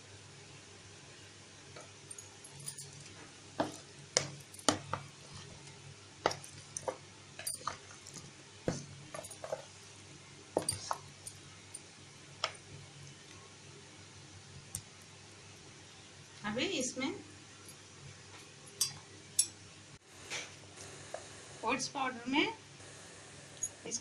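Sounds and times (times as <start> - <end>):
metal spoon clinking in bowl: 2.1 - 4.9, 6.3 - 7.8, 18.7 - 19.6.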